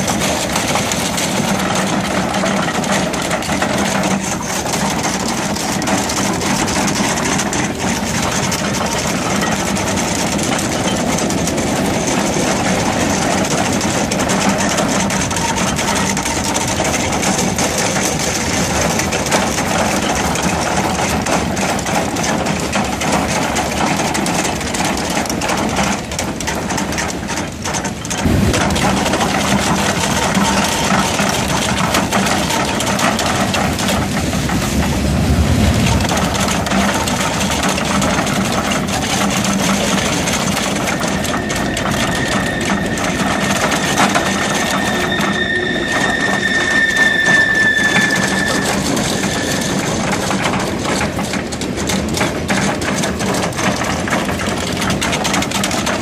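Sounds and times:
drum cutter grinding rock: 28.0 - 52.3
diesel engine and hydraulics drone: 28.0 - 56.0.

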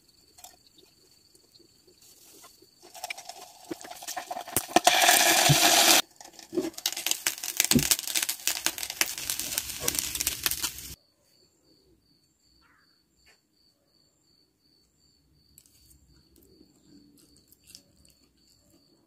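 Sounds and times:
loud hiss: 2.9 - 6.0, 6.8 - 11.0
oil sizzling in frying pan: 2.9 - 11.0.

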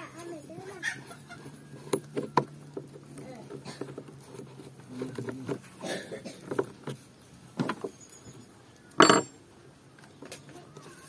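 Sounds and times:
hard parts knocking and clinking: 9.0 - 9.4.

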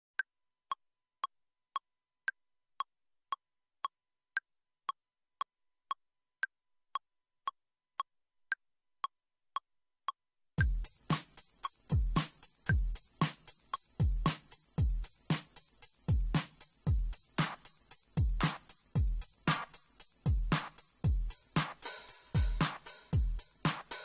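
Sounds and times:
electronic beat with deep kick: 10.6 - 24.0
metronome clicks: 10.6 - 24.0.

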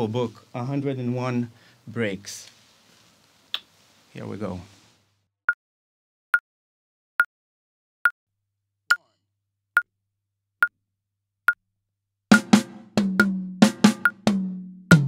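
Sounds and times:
drum fill with cymbals: 12.3 - 15.0.

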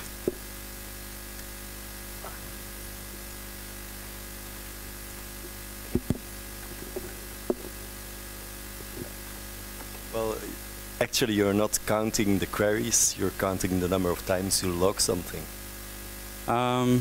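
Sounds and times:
electrical mains hum: 0.0 - 17.0
sharp knocks: 6.9 - 7.8.

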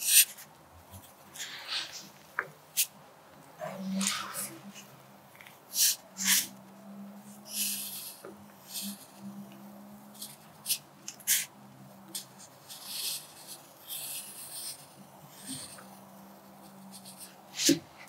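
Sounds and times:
pencil scratching on paper: 0.0 - 2.2, 5.7 - 17.8.

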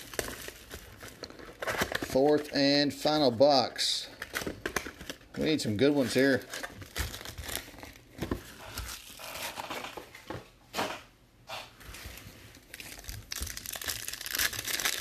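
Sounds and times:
foil pack crinkling: 4.2 - 10.0, 12.5 - 15.0.

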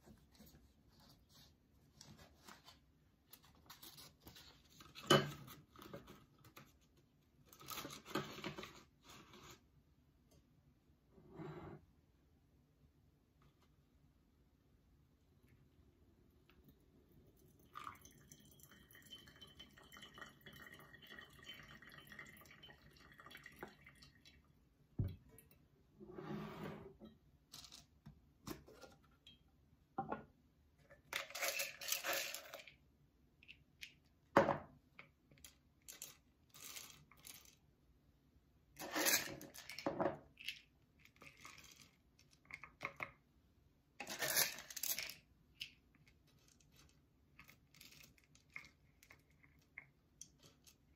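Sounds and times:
water pouring into coffee dripper: 17.4 - 24.4
coffee beans rattling: 31.2 - 32.8.

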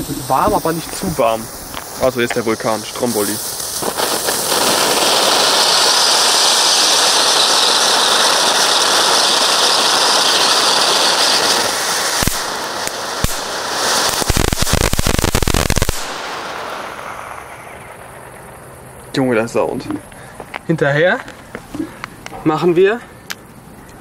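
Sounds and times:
firework crackling: 0.0 - 22.8
firework fountain hissing: 0.0 - 22.8
sharp firework cracks: 0.4 - 19.1.

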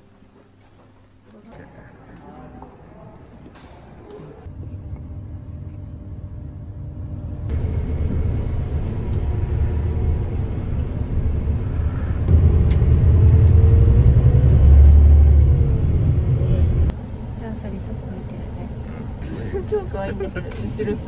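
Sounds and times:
road rumble: 4.4 - 21.0
bus engine: 5.6 - 21.0.

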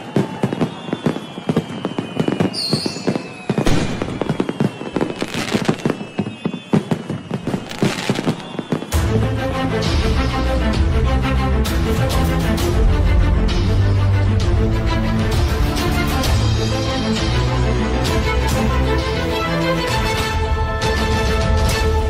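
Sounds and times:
falling whistle: 0.0 - 9.1
fireworks crackling and popping: 0.0 - 9.1
theme music: 8.9 - 22.0.

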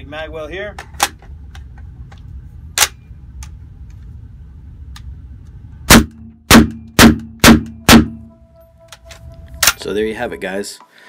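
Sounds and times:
rifle shots echoing: 5.9 - 8.2.

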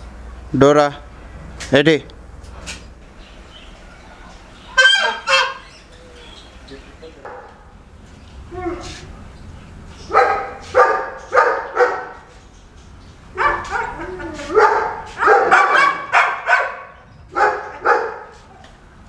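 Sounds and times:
dogs barking: 3.9 - 6.5, 7.2 - 7.8, 10.0 - 12.5, 13.2 - 18.6.

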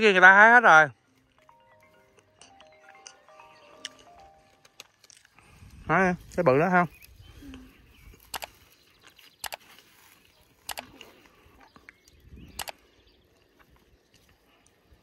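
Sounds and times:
plants crackling and rustling: 3.7 - 15.0.

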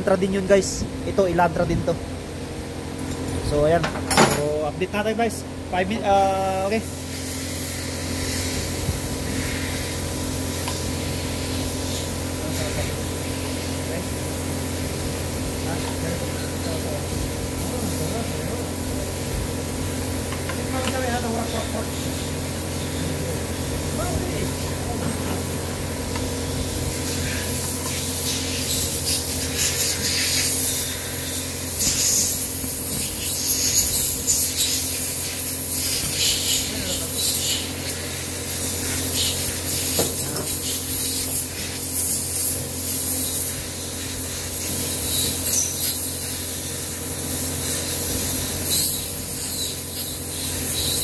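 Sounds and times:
motor hum: 0.0 - 34.5
hiss: 6.8 - 14.0, 26.5 - 51.0
rubbing and hissing noises: 7.0 - 13.9.

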